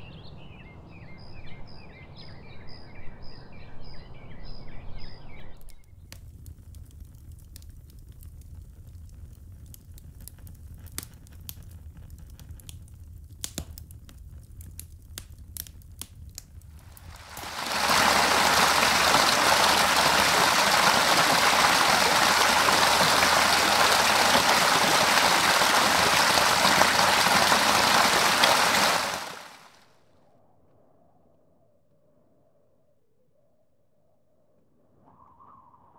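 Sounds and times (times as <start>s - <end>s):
embers crackling and popping: 6.0s - 29.7s
waterfall rushing over rocks: 17.0s - 29.8s.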